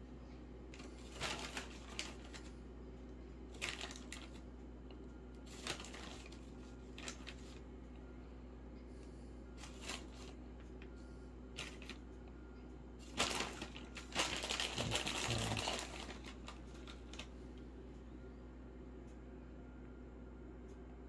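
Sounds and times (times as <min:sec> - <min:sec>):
plastic bag rustling and crinkling: 0:00.8 - 0:02.6, 0:03.5 - 0:04.4, 0:05.5 - 0:07.6, 0:09.6 - 0:10.4, 0:11.6 - 0:12.0, 0:13.0 - 0:17.3.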